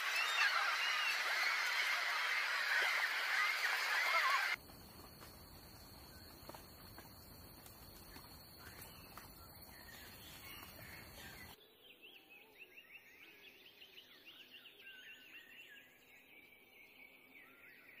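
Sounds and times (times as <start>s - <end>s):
wild birds calling: 0.0s - 4.6s
songbirds twittering: 8.0s - 18.0s.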